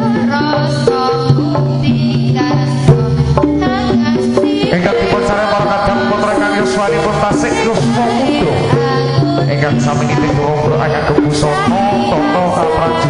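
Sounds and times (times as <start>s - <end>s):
hand drums beating: 0.0s - 13.0s.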